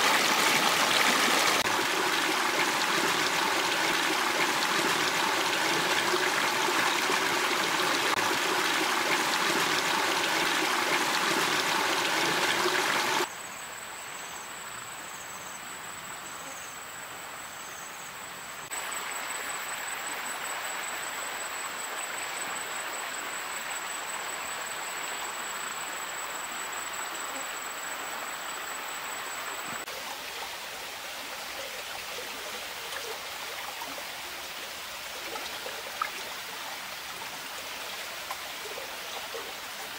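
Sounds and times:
stream water flowing: 0.0 - 13.3, 18.6 - 39.9.

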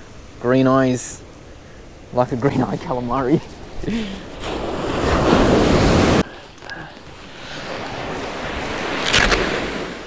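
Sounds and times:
surf breaking on shore: 2.7 - 10.0.

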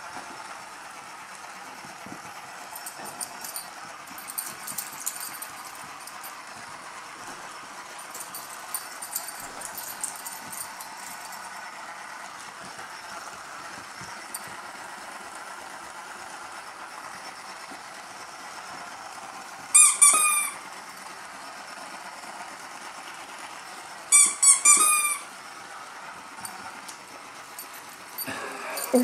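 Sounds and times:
squeaky dog toy squeaking: 19.8 - 20.6, 24.1 - 25.3.

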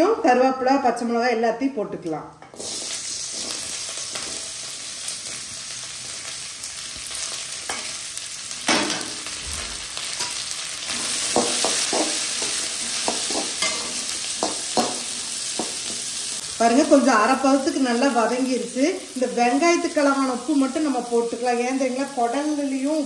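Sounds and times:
spatula scraping and knocking pan: 2.4 - 4.5, 10.2 - 16.4
vegetables sizzling in hot oil: 2.5 - 23.0.

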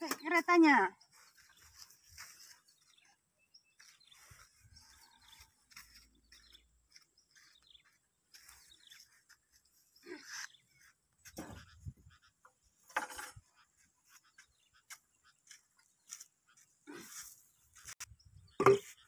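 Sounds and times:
faint bird chirps: 0.1 - 12.5.

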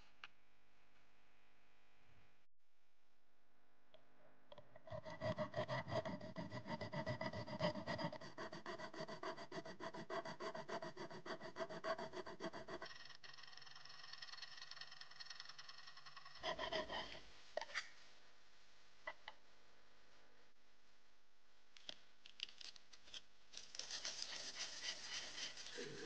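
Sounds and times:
metal file rasping on key: 4.9 - 17.2.

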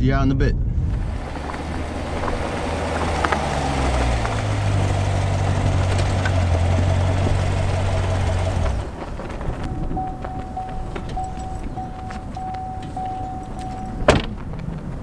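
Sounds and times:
car engine idling: 0.9 - 14.6.

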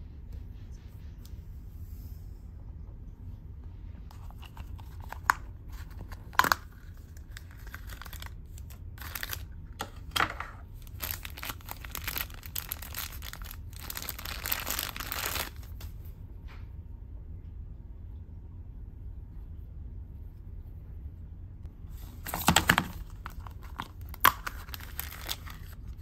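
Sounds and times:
plastic bag crinkling and tearing: 4.1 - 10.2, 10.8 - 15.9, 22.2 - 26.0.

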